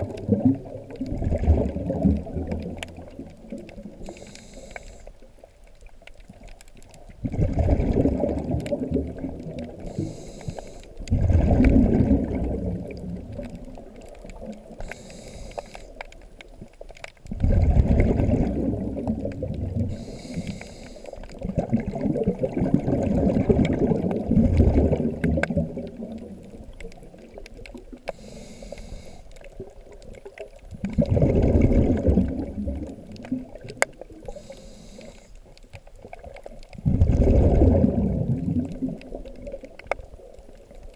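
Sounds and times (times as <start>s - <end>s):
bubbling exhaled air: 0.0s - 5.2s, 7.1s - 16.0s, 17.2s - 35.3s, 36.0s - 40.7s
regulator inhale hiss: 4.0s - 5.3s, 9.8s - 11.0s, 14.8s - 16.1s, 19.8s - 21.4s, 28.1s - 29.5s, 34.2s - 35.5s.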